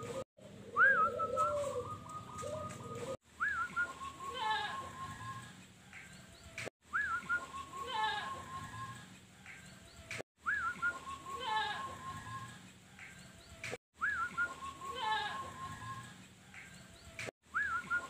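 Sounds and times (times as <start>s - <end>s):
dove cooing: 0.0s - 5.5s.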